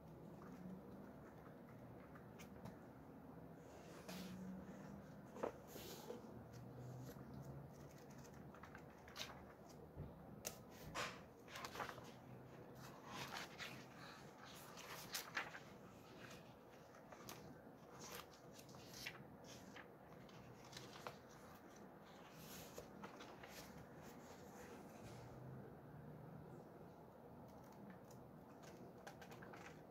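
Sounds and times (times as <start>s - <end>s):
paper pages rustling: 4.0s - 25.2s, 27.4s - 29.9s.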